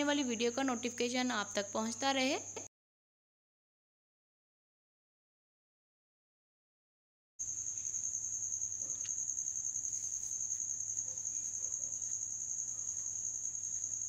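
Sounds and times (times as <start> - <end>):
cricket trilling: 0.0 - 2.7, 7.4 - 14.0.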